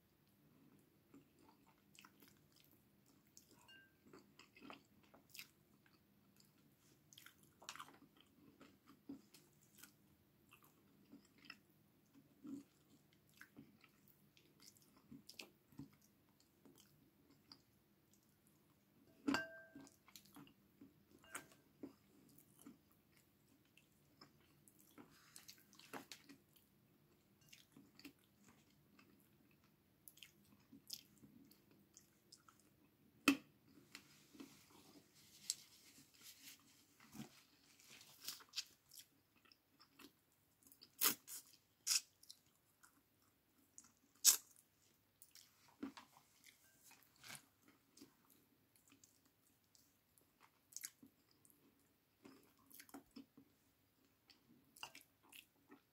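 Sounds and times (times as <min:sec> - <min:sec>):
person chewing: 0:01.1 - 0:18.2, 0:19.3 - 0:32.7, 0:33.7 - 0:53.5.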